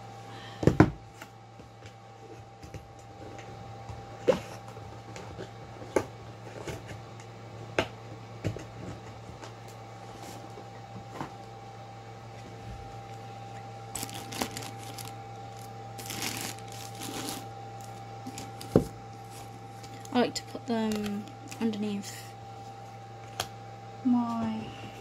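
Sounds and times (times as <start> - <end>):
steady low hum: 0.0 - 25.0
cards rustling and shuffling: 13.9 - 20.1.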